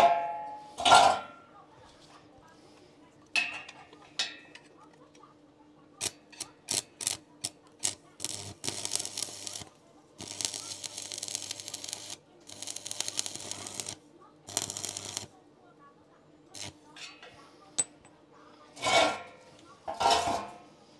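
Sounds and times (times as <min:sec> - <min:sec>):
welding arc crackling: 0:06.0 - 0:15.3, 0:16.5 - 0:16.8.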